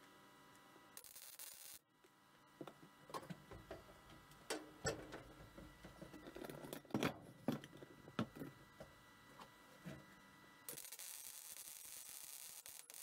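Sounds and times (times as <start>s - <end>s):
welding arc hissing and crackling: 1.0s - 1.8s, 10.7s - 13.0s.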